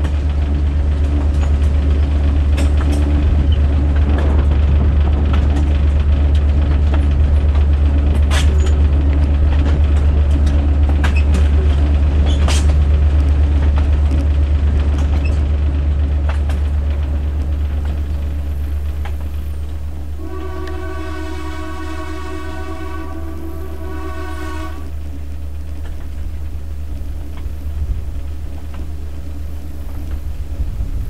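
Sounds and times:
track clicks: 0.0 - 21.0
train rumbling: 0.0 - 31.0
locomotive air horn: 20.0 - 25.4.

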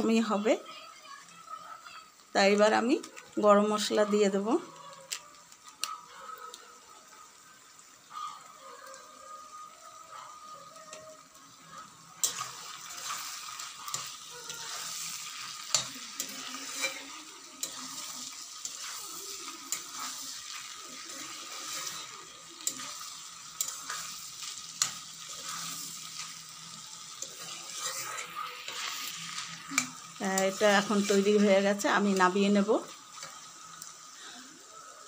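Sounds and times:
curry sizzling in a pan: 0.0 - 35.0
metal spatula scraping pan: 12.2 - 32.2.

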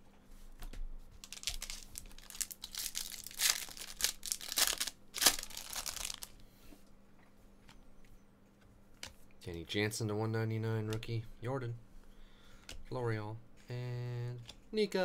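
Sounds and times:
foil wrapper crinkling and tearing: 1.2 - 6.4.

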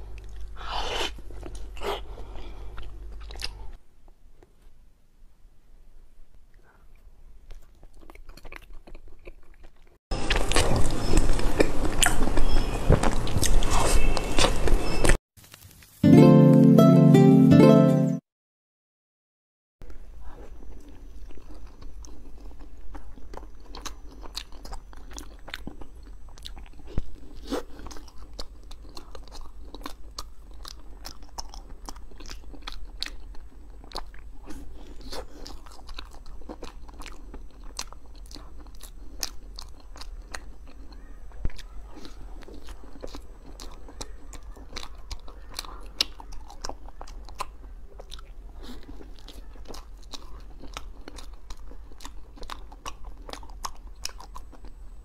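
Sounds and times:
chewing with wet clicks and smacks: 2.7 - 3.6, 6.5 - 13.7, 20.4 - 55.0.

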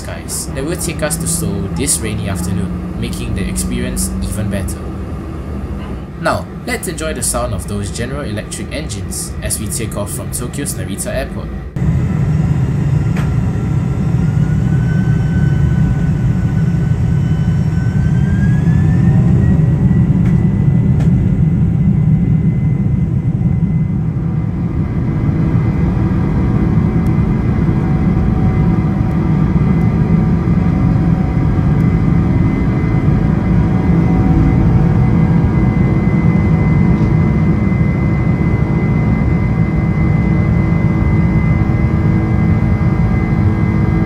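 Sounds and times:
jet engines rumbling and whining: 0.0 - 44.0.

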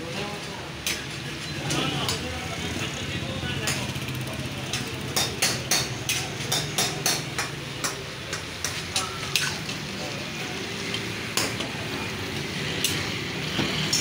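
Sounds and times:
metal utensils knocking on pan: 4.7 - 9.6.

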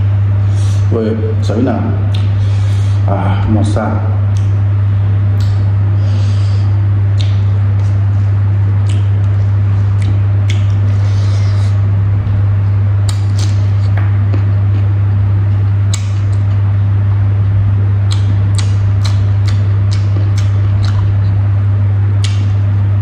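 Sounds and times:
low hum: 0.0 - 23.0
chewing and wet smacks: 2.1 - 2.4, 4.3 - 4.6, 5.4 - 5.7, 7.1 - 8.0, 8.8 - 11.0, 13.0 - 17.2, 18.0 - 21.5, 22.2 - 22.8.

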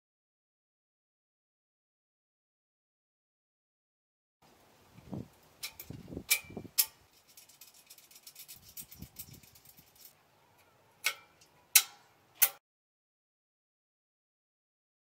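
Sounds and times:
light metal ticks: 5.3 - 10.1, 11.0 - 12.6
sharp metal clicks: 5.6 - 12.6.

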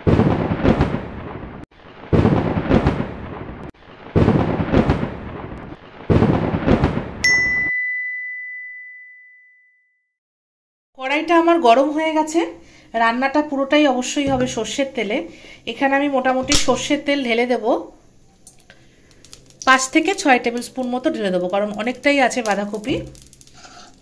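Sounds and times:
thunder-like rumbling swells: 0.0 - 7.2
bright bell ding: 7.2 - 9.9.

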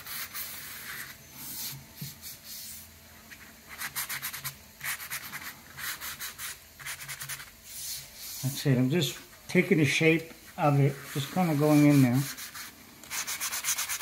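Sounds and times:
sanding pad scratching: 10.6 - 14.0.

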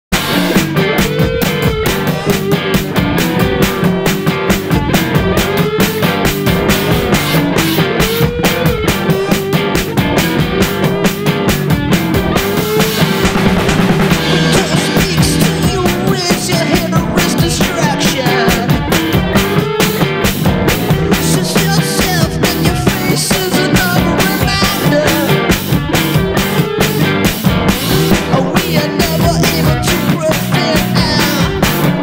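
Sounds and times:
synth-punk instrumental: 0.1 - 32.0.

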